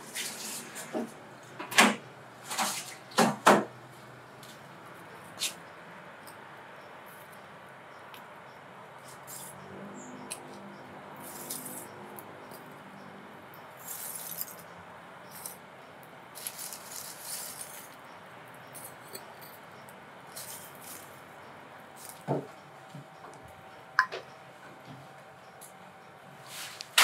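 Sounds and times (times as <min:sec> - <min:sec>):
charcoal pieces clinking: 0:11.2 - 0:11.9, 0:13.8 - 0:14.7, 0:16.4 - 0:18.0, 0:20.3 - 0:21.2.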